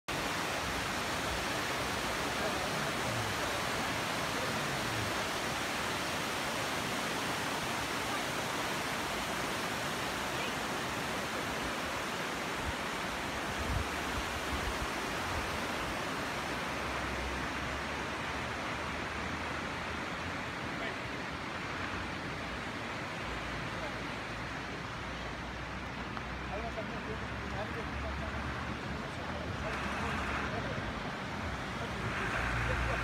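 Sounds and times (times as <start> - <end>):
waterfall rushing: 0.1 - 33.0.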